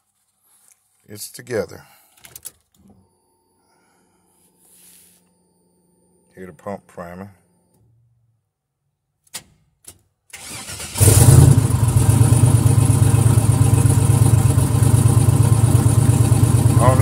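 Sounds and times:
car engine starting and idling: 0:10.3 - 0:17.0.

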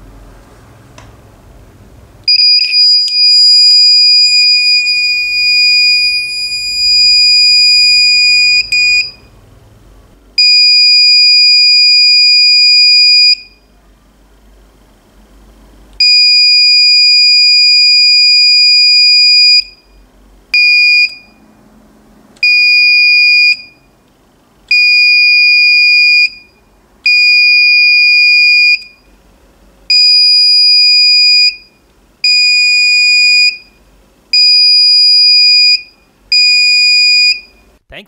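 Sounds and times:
electronic buzzer alarm tone: 0:02.3 - 0:09.3, 0:10.4 - 0:13.6, 0:16.0 - 0:20.0, 0:20.6 - 0:21.4, 0:22.4 - 0:23.9, 0:24.7 - 0:29.0, 0:29.9 - 0:33.8, 0:34.4 - 0:37.6.

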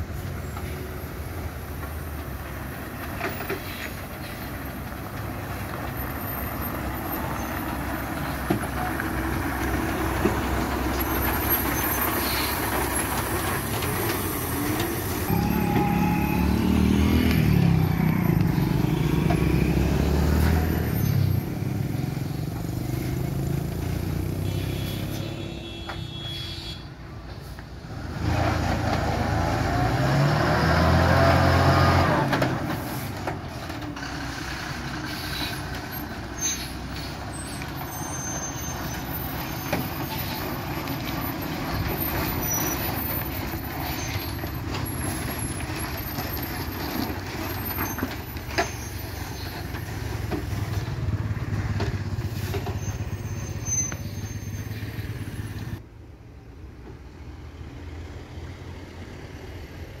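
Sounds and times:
lorry diesel engine running: 0:00.0 - 0:24.9, 0:31.0 - 0:55.9.

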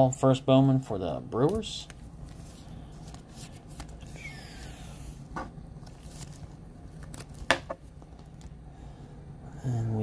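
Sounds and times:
steady low hum: 0:00.0 - 0:10.0
plastic card sleeve rustling: 0:01.3 - 0:05.0, 0:05.8 - 0:08.6.

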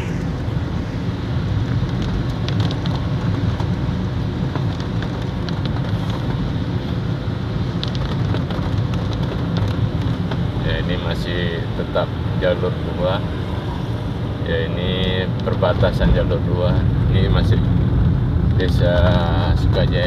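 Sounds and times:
car rumbling on wet road: 0:00.0 - 0:20.0
heavy rain on car roof: 0:01.0 - 0:13.6, 0:14.2 - 0:20.0
raindrops ticking: 0:01.7 - 0:06.6, 0:07.6 - 0:10.6.

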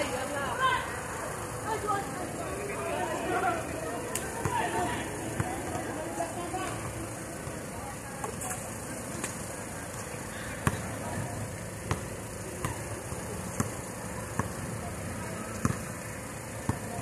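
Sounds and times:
basketball bouncing on court: 0:10.6 - 0:14.8, 0:15.5 - 0:16.0, 0:16.6 - 0:17.0.

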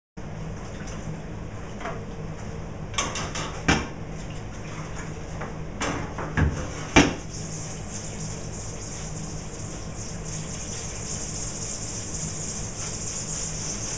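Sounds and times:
bristles scrubbing mesh: 0:07.1 - 0:13.9
low hum: 0:07.1 - 0:13.9.

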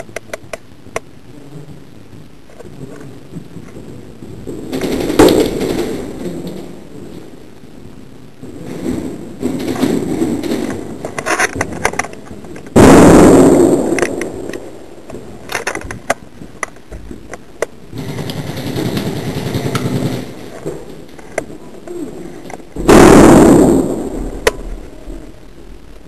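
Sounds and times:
airsoft guns firing: 0:04.6 - 0:06.7, 0:08.8 - 0:11.0, 0:12.7 - 0:14.4, 0:17.9 - 0:21.0, 0:22.8 - 0:24.7
loud sudden bang: 0:12.8 - 0:14.0, 0:22.8 - 0:25.2.

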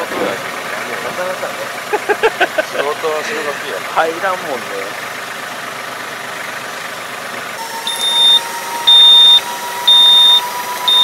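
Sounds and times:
tractor engine running: 0:00.0 - 0:11.0
warning beeper short beeps: 0:07.9 - 0:11.0.

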